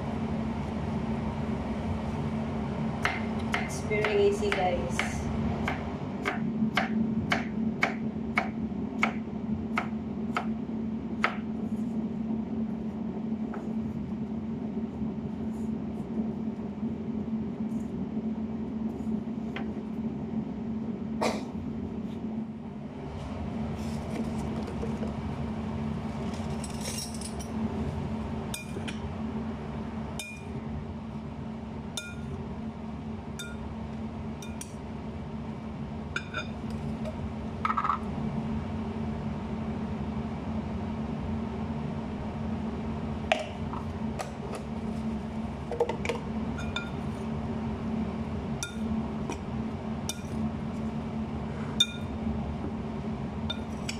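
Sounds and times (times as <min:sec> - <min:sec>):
steady low hum: 0:00.0 - 0:53.9
clinks against glass bowl: 0:51.8 - 0:52.1.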